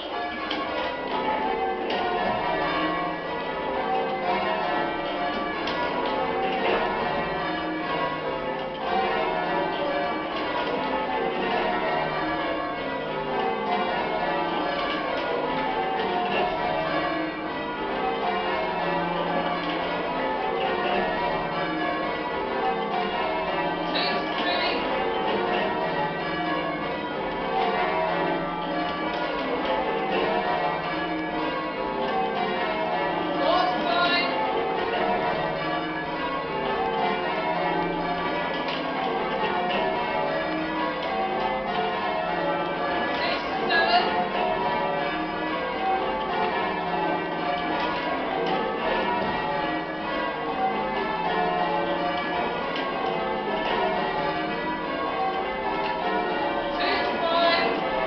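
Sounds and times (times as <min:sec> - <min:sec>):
church bells change-ringing: 0:00.0 - 0:58.0.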